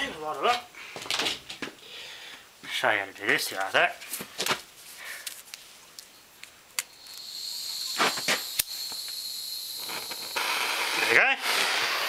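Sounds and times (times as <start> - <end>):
blowtorch hissing with whistle: 6.8 - 12.0.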